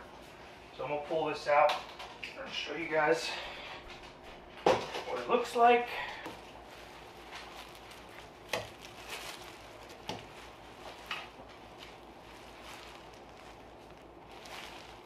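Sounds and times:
plastic bag crinkling: 5.1 - 15.0.

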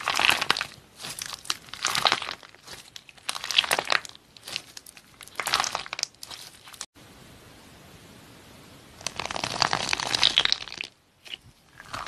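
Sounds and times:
slime squeezed between fingers: 9.0 - 12.0.

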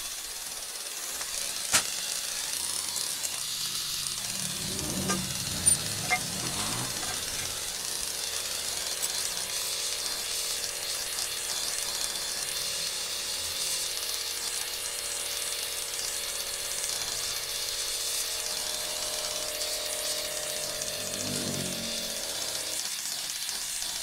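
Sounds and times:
welding torch flame hissing: 0.0 - 14.7.

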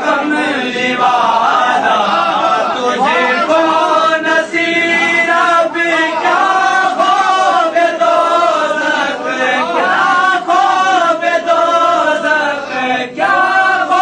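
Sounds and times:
man chanting melodically: 0.0 - 14.0.

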